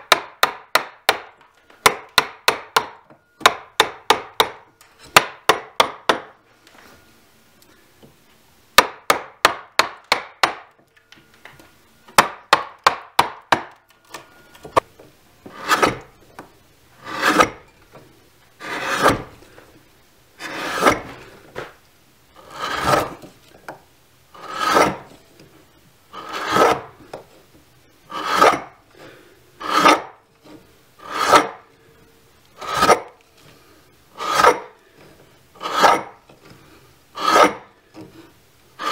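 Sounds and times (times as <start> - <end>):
gouge scraping wood: 15.4 - 16.1, 17.0 - 17.6, 18.6 - 19.4, 20.4 - 21.7, 22.4 - 23.3, 24.3 - 25.2, 26.1 - 26.9, 28.1 - 31.6, 32.6 - 34.8, 35.5 - 38.9.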